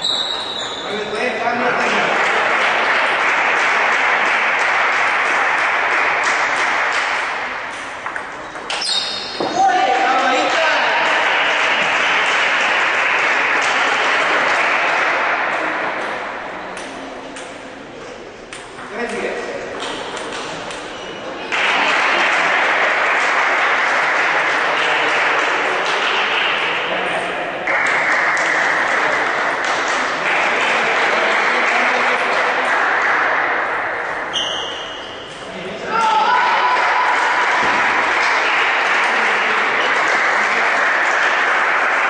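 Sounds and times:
spectators applauding: 1.6 - 7.7, 9.6 - 16.0, 21.5 - 26.9, 27.6 - 34.2, 36.0 - 42.0.

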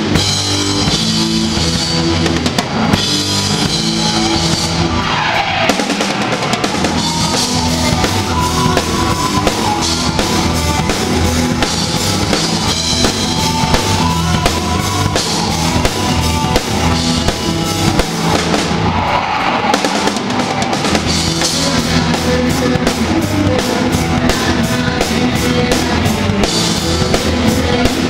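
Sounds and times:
bass guitar: 0.0 - 28.0
electric guitars: 0.0 - 28.0
bass drum: 5.7 - 19.1, 19.9 - 28.0.

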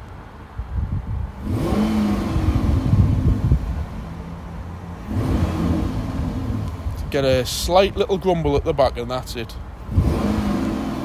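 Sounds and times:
car engine revving gently: 1.4 - 4.2, 5.0 - 7.3, 9.8 - 11.0.

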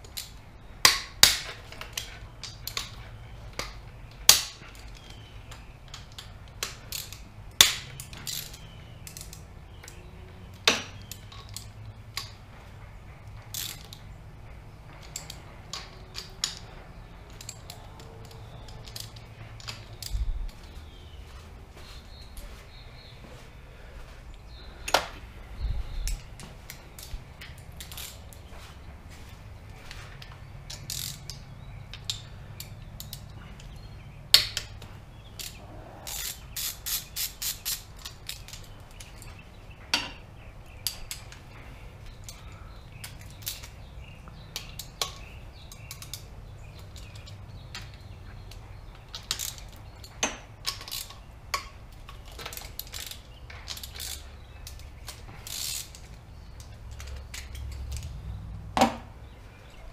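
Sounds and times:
socket ratchet clicking: 30.7 - 33.8, 35.4 - 39.2, 49.1 - 58.2
tools clinking on metal: 40.8 - 59.0.

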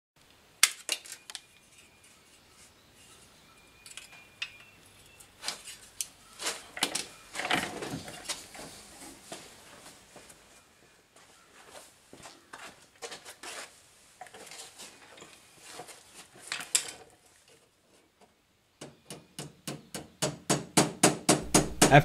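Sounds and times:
quick regular metal taps: 18.8 - 22.0.

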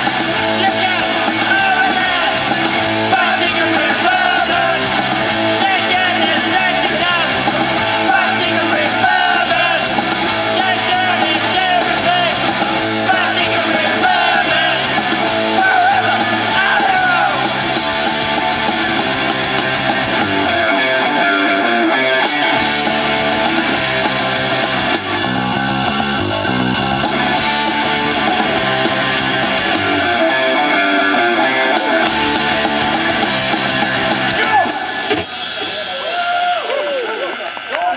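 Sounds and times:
lead vocals singing: 0.0 - 17.8
punk rock band playing: 0.0 - 36.4.

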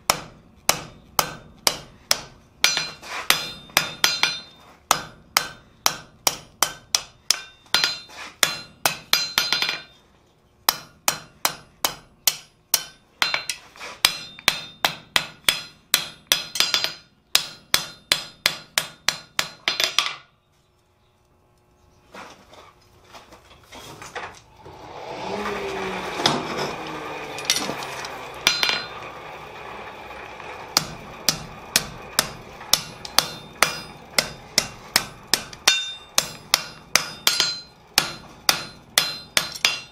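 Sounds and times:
hammer ringing on anvil: 0.1 - 10.0, 10.7 - 20.2, 28.4 - 29.0, 30.8 - 39.9.

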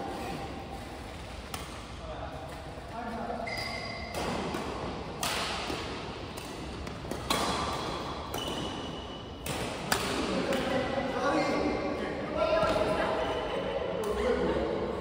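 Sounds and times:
shoes squeaking on court floor: 3.3 - 4.4, 6.9 - 9.4
rackets hitting shuttlecock: 3.6 - 10.8.

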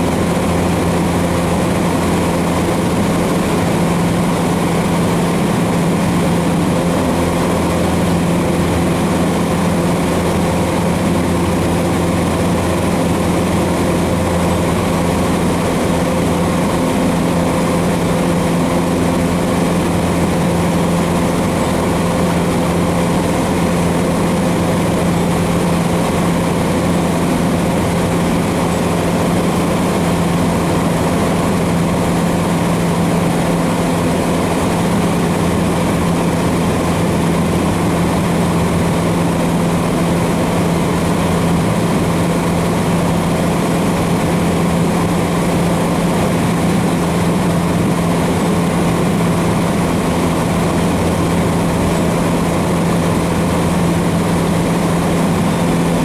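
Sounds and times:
airplane engine and propeller humming: 0.0 - 56.0.

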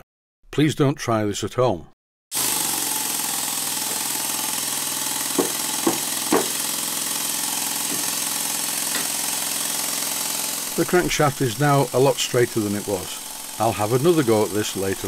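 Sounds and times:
model steam engine hissing: 2.4 - 15.0.

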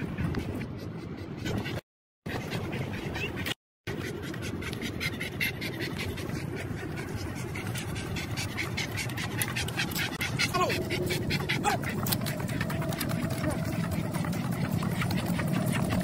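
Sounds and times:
dog panting: 0.0 - 16.0
steady low rumble: 3.9 - 16.0.

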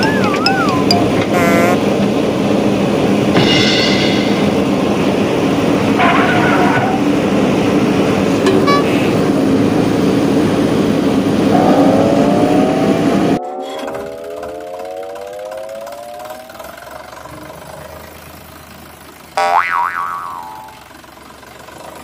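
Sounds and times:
vehicle engine running: 0.0 - 22.0
engine revving: 11.2 - 18.0.

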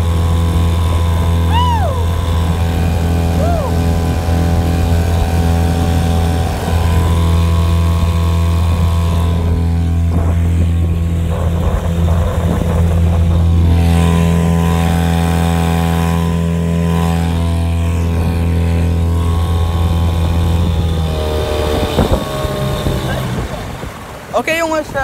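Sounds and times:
outboard motor running: 0.0 - 25.0.

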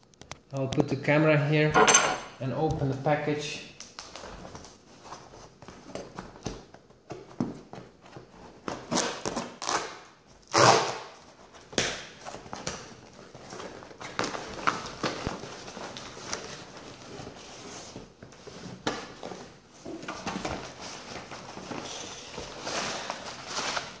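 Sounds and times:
tape and cardboard scraping: 8.7 - 11.3
knife slitting packing tape: 8.8 - 11.2.

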